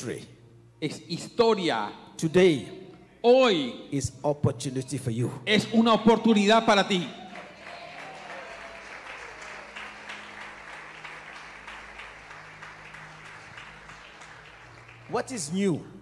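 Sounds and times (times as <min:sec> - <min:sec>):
congregation applauding: 0:06.6 - 0:16.0.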